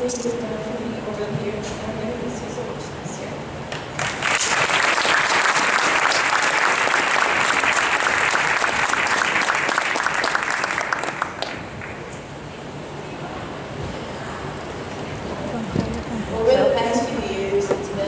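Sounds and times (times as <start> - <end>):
crowd applauding: 3.7 - 12.2.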